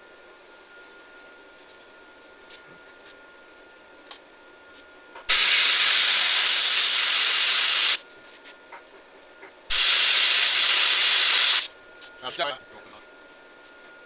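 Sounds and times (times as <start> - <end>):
plasma cutter hissing: 5.3 - 8.0, 9.7 - 11.7.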